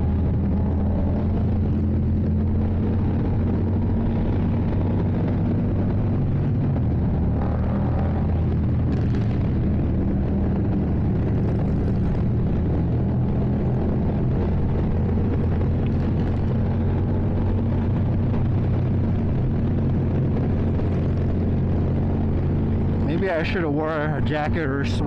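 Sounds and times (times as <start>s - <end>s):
motorcycle engine cruising: 0.0s - 25.0s
wind noise on microphone: 0.0s - 25.0s.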